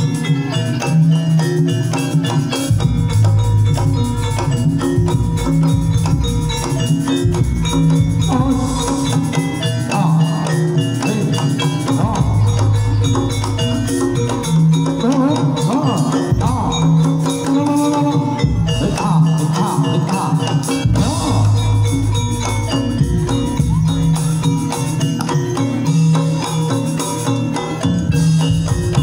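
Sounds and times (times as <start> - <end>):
drum strokes: 0.0 - 29.0
gongs and metallophones ringing: 0.0 - 29.0
wavering high melody: 0.0 - 29.0.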